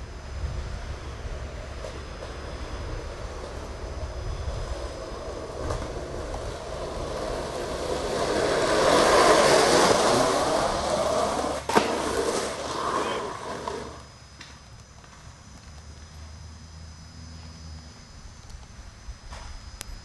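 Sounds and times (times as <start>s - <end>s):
skateboard wheels rolling on pavement: 0.0s - 16.4s
skateboard clack: 4.7s - 14.0s.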